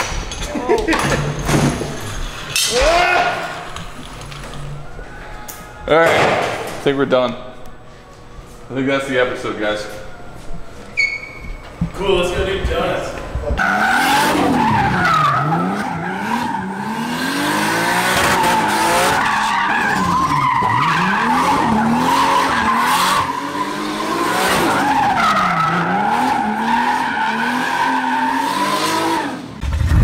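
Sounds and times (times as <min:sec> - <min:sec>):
tyres squealing: 0:08.9 - 0:12.0, 0:18.2 - 0:28.6
car engine revving: 0:13.6 - 0:29.5.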